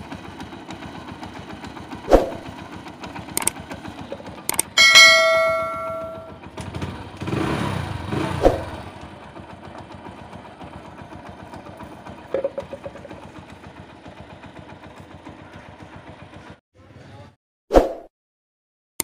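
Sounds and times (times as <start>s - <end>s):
motorcycle engine revving and idling: 0.0s - 17.4s
sharp click: 3.4s - 3.6s, 4.5s - 4.7s.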